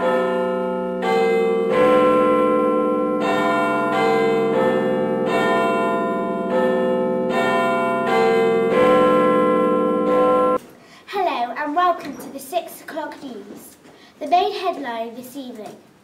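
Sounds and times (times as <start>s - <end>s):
church bells ringing: 0.0s - 10.6s.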